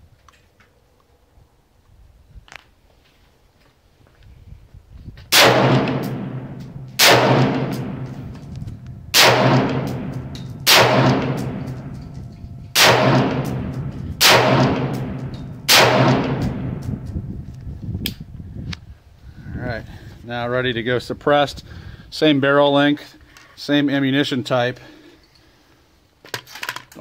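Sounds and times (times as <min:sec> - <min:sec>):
rifle shots echoing: 0:05.3 - 0:17.1.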